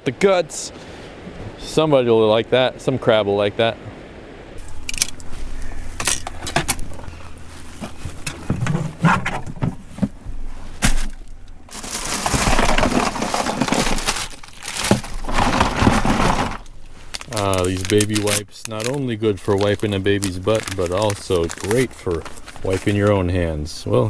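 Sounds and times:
ice crunching: 0:04.6 - 0:23.6.

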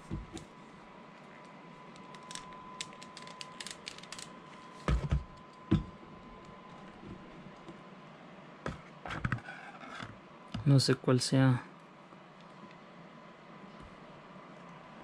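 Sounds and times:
plastic parts clicking: 0:02.0 - 0:04.3
heavier knocks on desk mat: 0:04.8 - 0:06.0.

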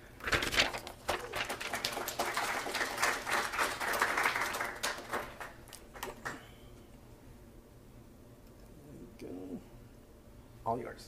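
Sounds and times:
audience applauding: 0:01.0 - 0:06.4.

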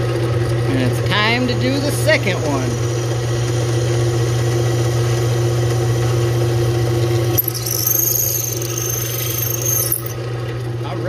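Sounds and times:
drill press running: 0:00.0 - 0:10.3
drill bit squealing on steel: 0:07.0 - 0:10.2.

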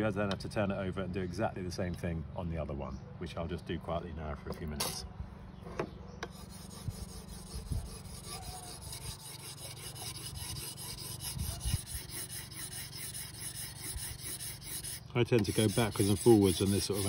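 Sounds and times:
whetstone rubbing on steel blade: 0:06.3 - 0:17.0.

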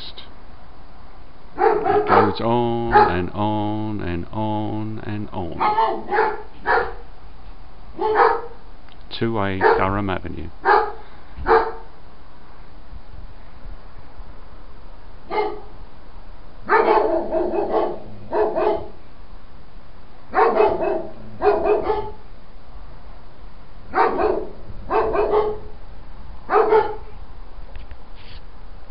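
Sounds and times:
dogs barking: 0:01.6 - 0:03.2, 0:05.6 - 0:07.1, 0:08.0 - 0:08.6, 0:09.6 - 0:09.9, 0:10.6 - 0:11.9, 0:15.3 - 0:15.7, 0:16.6 - 0:19.0, 0:20.3 - 0:22.2, 0:23.9 - 0:25.7, 0:26.5 - 0:27.1.

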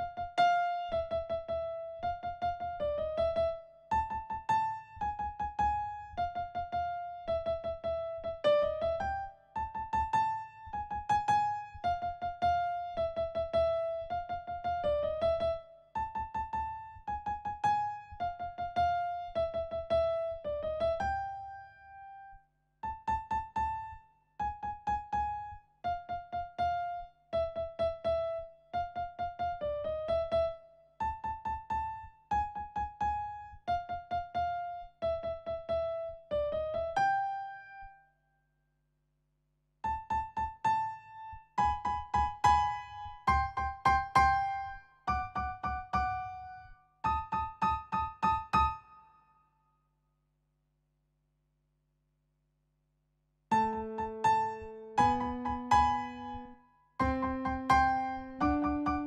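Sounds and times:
keyboard piano notes: 0:53.5 - 0:59.0.

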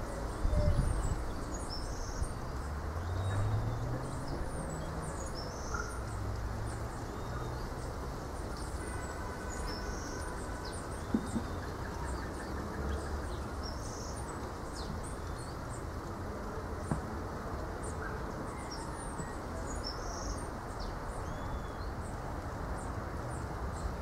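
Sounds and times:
wind rumble on microphone: 0:00.0 - 0:05.5.

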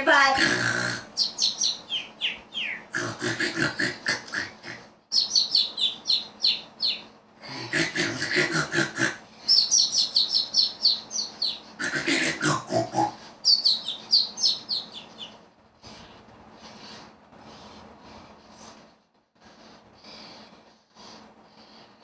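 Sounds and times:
cartoon snoring: 0:00.3 - 0:01.2, 0:02.9 - 0:04.9, 0:07.4 - 0:09.2, 0:11.8 - 0:13.2.

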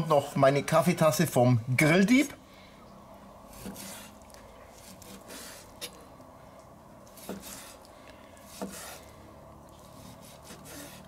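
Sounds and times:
knife slicing steak: 0:03.5 - 0:06.0, 0:07.1 - 0:09.1, 0:09.7 - 0:11.0.

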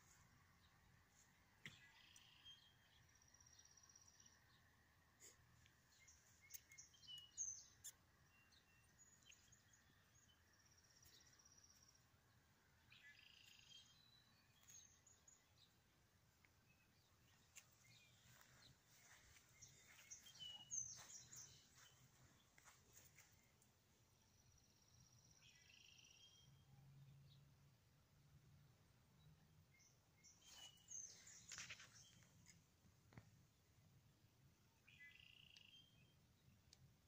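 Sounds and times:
faint high-pitched chirps: 0:01.6 - 0:12.1, 0:12.8 - 0:15.8, 0:16.7 - 0:23.6, 0:34.8 - 0:36.8.

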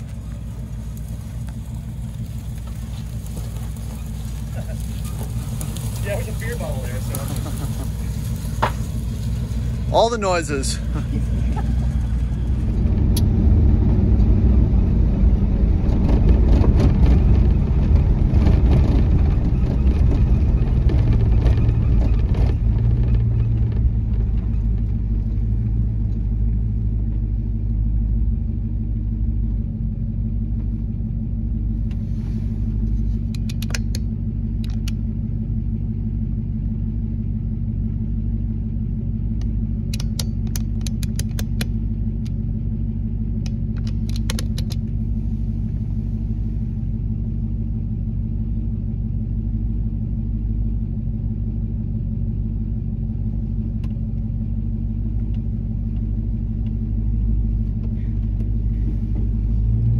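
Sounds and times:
tyres on gravel: 0:00.0 - 0:13.6, 0:16.0 - 0:27.9, 0:30.4 - 0:35.4, 0:38.6 - 0:48.4, 0:53.2 - 0:59.9
engine rumble: 0:00.0 - 0:59.9
sharp clicks: 0:33.3 - 0:35.0, 0:39.4 - 0:42.4, 0:43.4 - 0:44.9.

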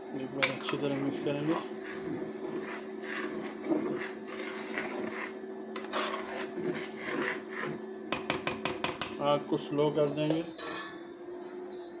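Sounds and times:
cooktop humming: 0:00.0 - 0:12.0
spoon stirring liquid in a pot: 0:00.4 - 0:09.2.

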